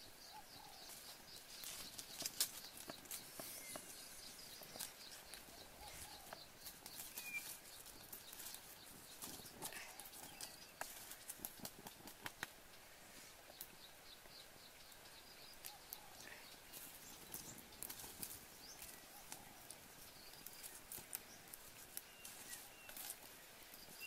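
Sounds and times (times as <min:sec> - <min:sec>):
wood fire crackling: 0:00.8 - 0:24.0
stick poking embers: 0:01.6 - 0:12.6
sharp pops and clicks: 0:10.8 - 0:12.6.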